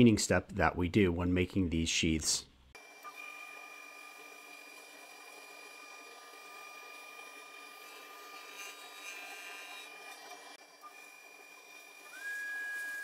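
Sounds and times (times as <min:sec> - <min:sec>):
router spindle whining: 0:02.8 - 0:13.0.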